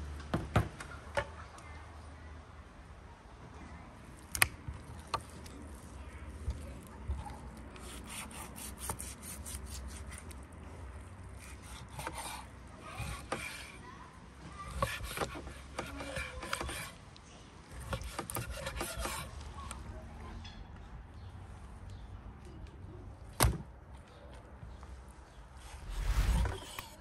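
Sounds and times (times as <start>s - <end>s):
knife slicing raw liver: 7.3s - 10.4s, 11.4s - 13.8s.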